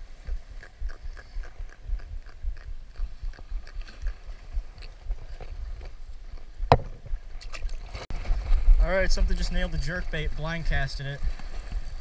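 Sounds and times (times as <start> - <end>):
sharp knock: 6.7 - 7.1.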